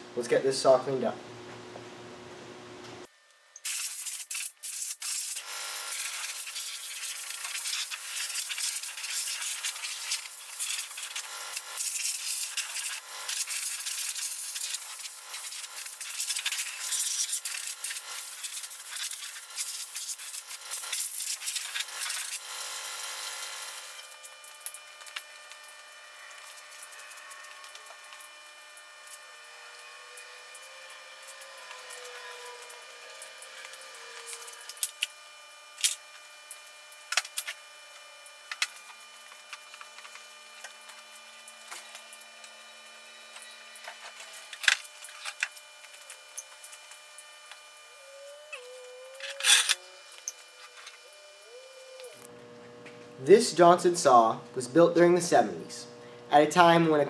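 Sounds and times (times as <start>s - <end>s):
compressed air gun hissing: 3.6s - 22.4s.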